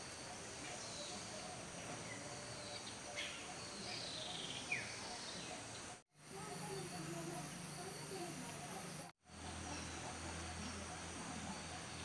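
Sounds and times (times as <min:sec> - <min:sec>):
wild birds calling: 0:00.0 - 0:12.0
high-pitched insect drone: 0:06.2 - 0:12.0.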